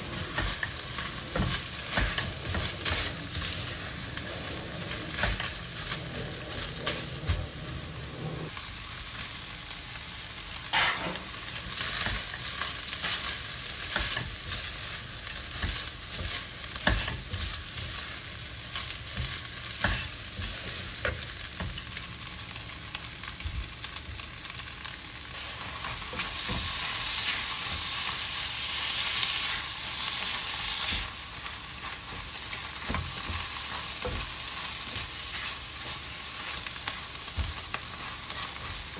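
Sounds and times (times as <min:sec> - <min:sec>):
spatula scraping a wok: 0:00.0 - 0:08.6
food sizzling in a wok: 0:00.0 - 0:38.9.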